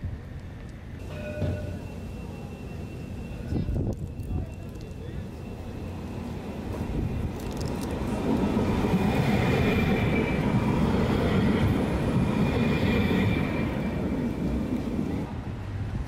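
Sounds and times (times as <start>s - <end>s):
tram wheels rumbling on track: 0.2s - 16.0s
faint high whine: 0.8s - 7.4s.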